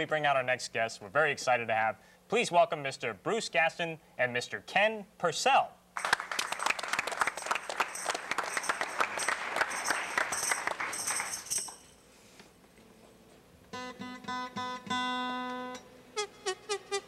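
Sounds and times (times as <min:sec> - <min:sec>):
audience applause: 0:06.0 - 0:11.5
acoustic guitar: 0:13.7 - 0:17.0.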